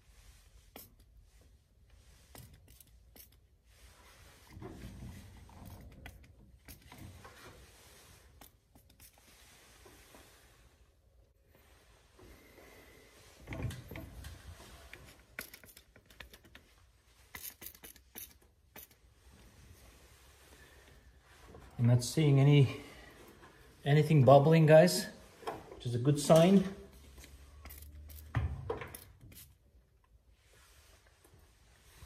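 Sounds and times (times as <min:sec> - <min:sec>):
rubbing and handling noises: 0:00.0 - 0:28.3
spray bottle squirting: 0:00.7 - 0:01.1, 0:02.3 - 0:03.5, 0:15.3 - 0:16.4, 0:17.2 - 0:19.0, 0:27.6 - 0:29.6.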